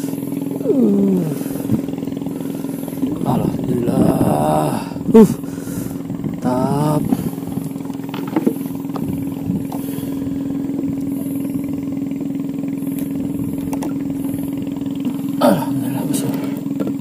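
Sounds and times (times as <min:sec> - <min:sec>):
small boat engine idling: 0:00.0 - 0:17.0
light clicks and knocks: 0:08.0 - 0:09.1.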